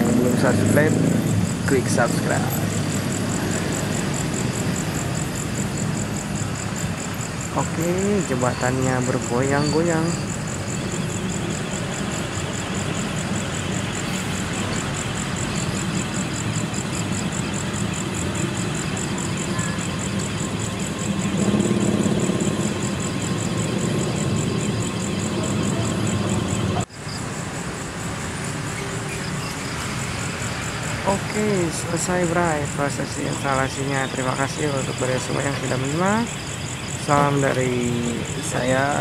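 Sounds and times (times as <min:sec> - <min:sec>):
heavy machinery engine running: 0:00.0 - 0:26.9
insects chirping: 0:00.0 - 0:39.0.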